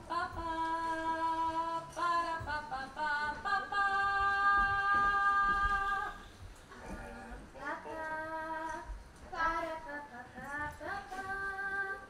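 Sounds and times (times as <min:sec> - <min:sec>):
child singing slow melody: 0:07.6 - 0:12.0.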